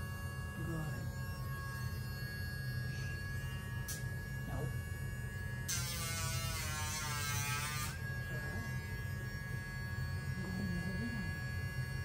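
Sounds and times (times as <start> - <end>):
rotary nail grinder whining: 5.7 - 9.7.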